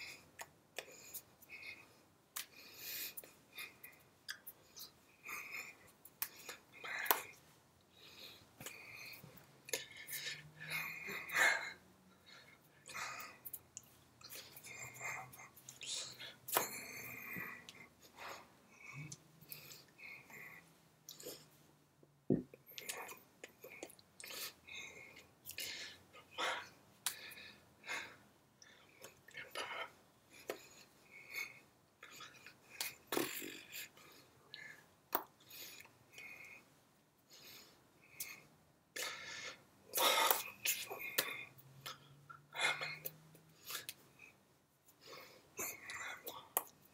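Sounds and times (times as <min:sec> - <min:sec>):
hands clapping: 0:16.5 - 0:16.8.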